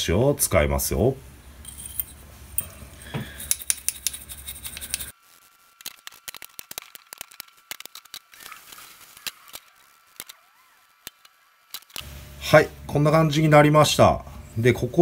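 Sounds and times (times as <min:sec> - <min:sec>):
background hum: 0:00.0 - 0:15.0
small metal parts clicking: 0:01.6 - 0:05.1, 0:05.8 - 0:12.0
wire brush scrubbing metal: 0:03.4 - 0:05.1.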